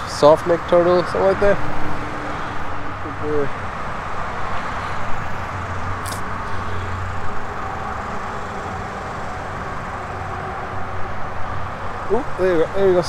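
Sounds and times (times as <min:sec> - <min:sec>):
vehicle traffic hum: 0:00.0 - 0:13.0.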